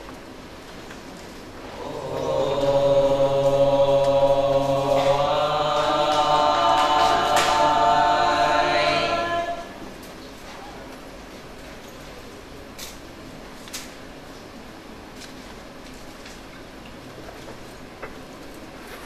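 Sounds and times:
voices chanting long notes: 0:01.7 - 0:09.9.

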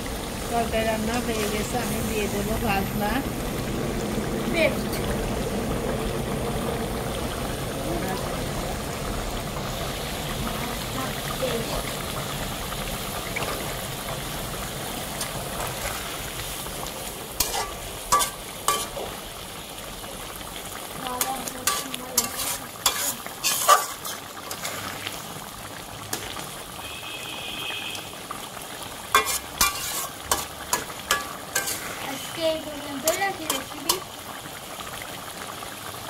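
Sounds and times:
curry simmering and bubbling: 0:00.0 - 0:36.0
metal spatula scraping pan: 0:17.4 - 0:19.1, 0:21.2 - 0:25.2, 0:29.1 - 0:32.4.

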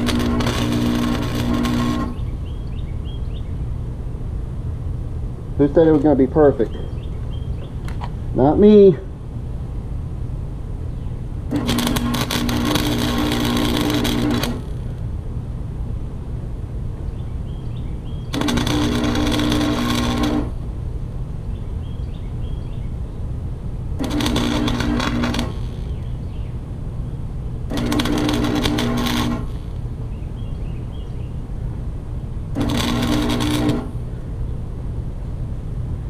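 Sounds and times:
welding arc crackling: 0:00.0 - 0:02.3, 0:11.5 - 0:15.0, 0:18.3 - 0:20.6, 0:24.0 - 0:26.1, 0:27.7 - 0:29.9, 0:32.5 - 0:34.0
welder buzzing tone: 0:00.0 - 0:02.4, 0:11.5 - 0:15.0, 0:18.3 - 0:20.6, 0:24.0 - 0:26.3, 0:27.7 - 0:30.0, 0:32.5 - 0:34.2
steady low hum: 0:00.0 - 0:36.0.

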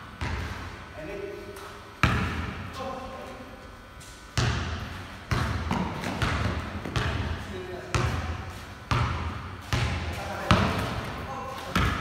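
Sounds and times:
basketball bouncing on concrete: 0:00.2 - 0:00.6, 0:02.0 - 0:02.6, 0:04.4 - 0:12.0.

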